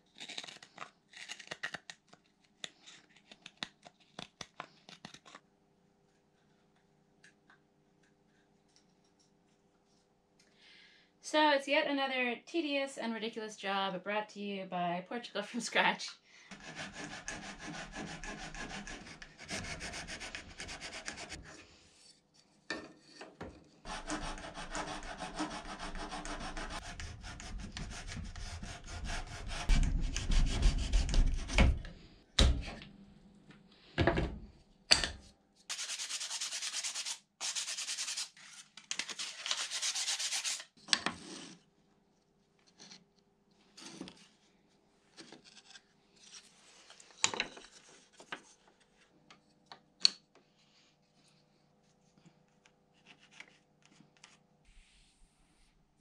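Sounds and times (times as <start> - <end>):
wood sanding by hand: 16.5 - 21.4, 23.9 - 31.6, 35.7 - 38.4, 39.2 - 40.7.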